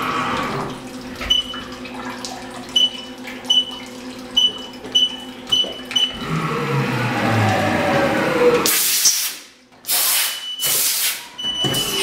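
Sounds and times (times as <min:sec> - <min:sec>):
machine whir with gliding tones: 0:06.0 - 0:08.7.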